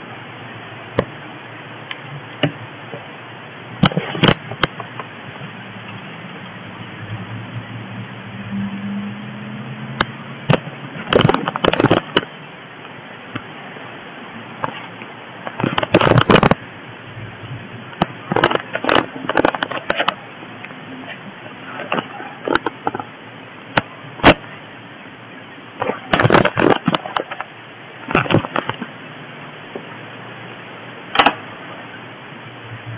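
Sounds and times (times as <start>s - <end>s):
steady hiss: 0.0s - 32.9s
microphone handling clicks: 3.8s - 5.2s, 10.0s - 13.5s, 14.6s - 16.6s, 17.9s - 20.2s, 21.7s - 23.1s, 25.8s - 28.9s, 31.1s - 31.4s.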